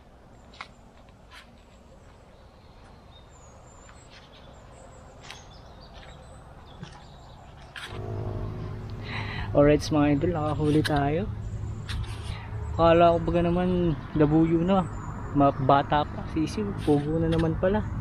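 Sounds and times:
faint birds chirping: 0.0s - 18.0s
low steady hum: 7.9s - 16.5s.

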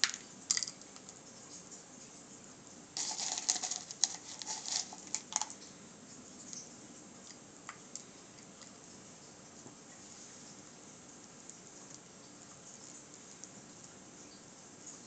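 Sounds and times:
wax chunks clicking against glass: 0.0s - 1.2s, 3.0s - 5.7s.

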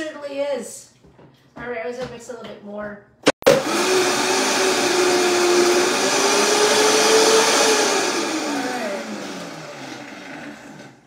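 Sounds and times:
blender running: 3.4s - 11.0s.

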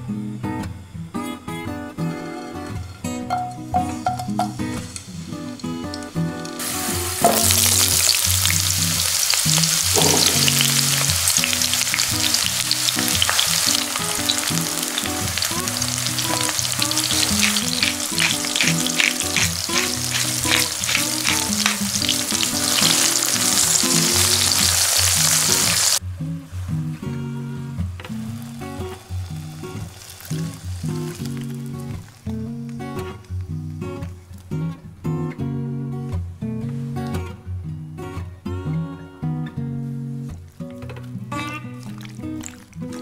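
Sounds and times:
vegetables sizzling in a pan: 4.0s - 26.0s, 28.1s - 32.4s
sharp crackles of frying: 4.1s - 26.0s, 28.0s - 34.0s, 40.6s - 43.0s.

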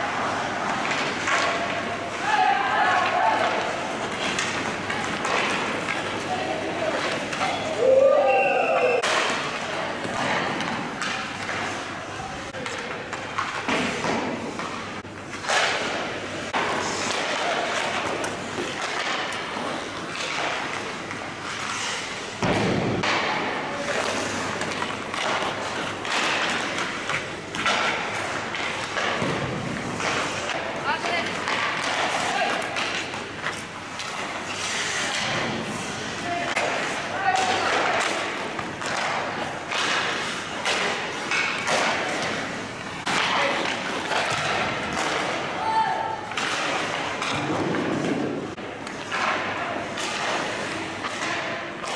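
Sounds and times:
stick hitting puck: 0.2s - 6.3s, 12.6s - 21.7s, 22.4s - 35.8s, 36.4s - 45.5s, 46.3s - 51.9s
skate blades scraping ice: 13.5s - 22.3s, 23.0s - 51.9s.

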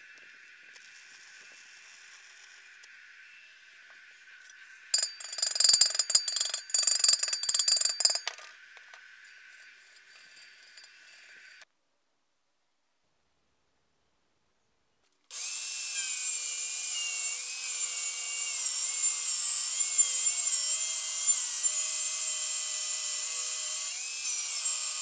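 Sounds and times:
chipping hammer tapping metal: 5.0s - 8.4s.

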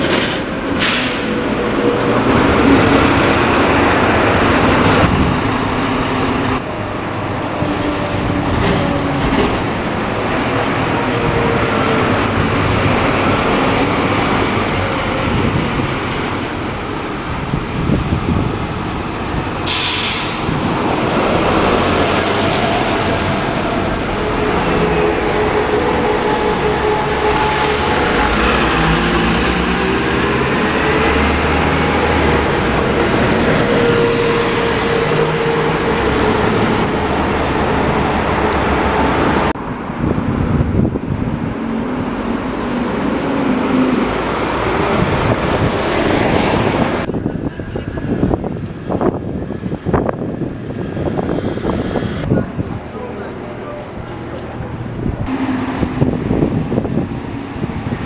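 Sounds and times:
city street traffic: 0.0s - 58.0s
air brakes hissing: 0.8s - 1.6s, 19.6s - 20.6s, 27.0s - 28.2s.

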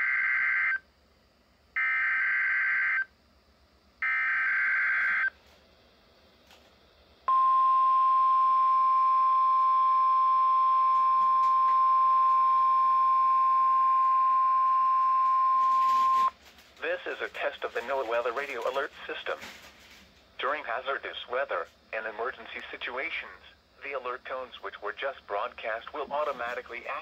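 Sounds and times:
steady warning alarm tone: 0.0s - 0.8s, 1.8s - 3.1s, 4.0s - 5.4s, 7.3s - 16.4s.

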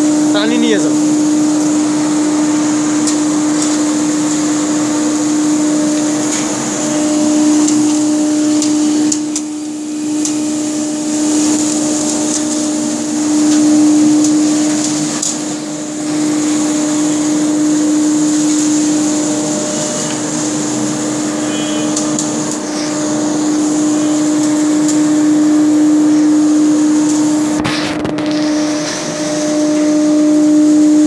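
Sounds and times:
dust collector rushing: 0.0s - 31.0s
router spindle motor whine: 0.0s - 31.0s.

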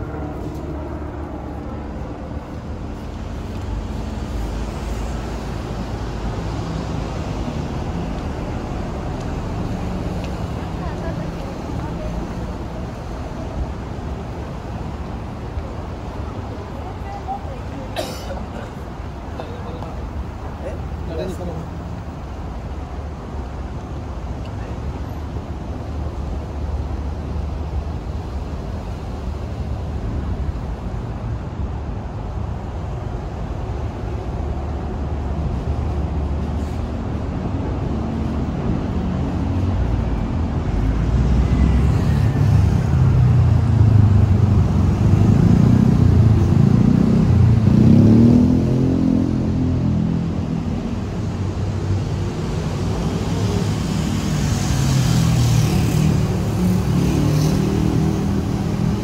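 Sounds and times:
road traffic rumble: 0.0s - 59.0s
vehicle passing by: 36.0s - 59.0s.

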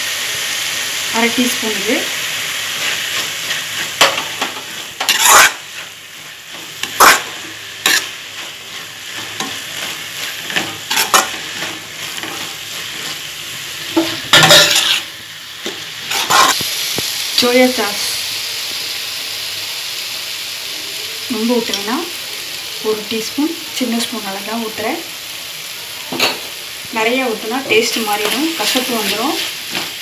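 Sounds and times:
vegetables sizzling in a pan: 0.0s - 30.0s
spatula scraping and knocking pan: 2.7s - 16.6s.

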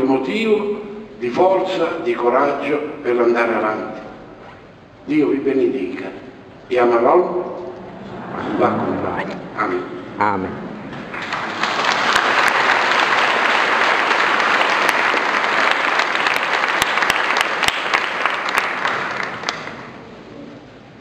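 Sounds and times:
congregation applauding: 10.9s - 20.1s.

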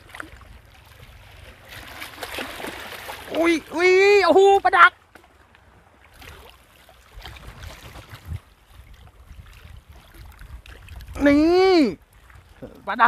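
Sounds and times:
water lapping at rocks: 0.0s - 13.0s
wind rumble on microphone: 7.1s - 12.8s.

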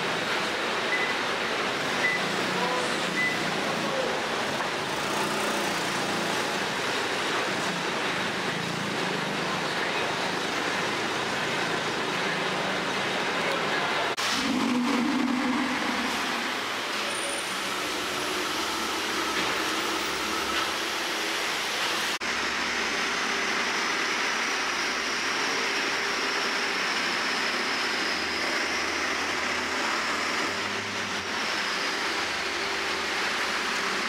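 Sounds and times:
car traffic and idling engines: 0.0s - 34.0s.

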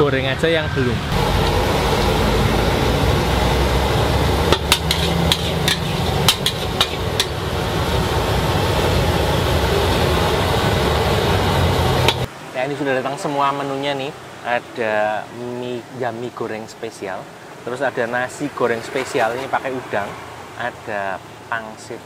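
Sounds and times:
steady low roar: 1.0s - 6.3s
metal spatula clanking on wok: 4.5s - 7.4s.

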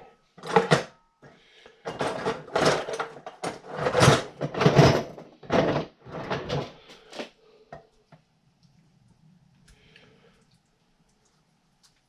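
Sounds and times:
rustling and scraping: 0.0s - 7.4s
faint low hum: 5.4s - 12.0s.

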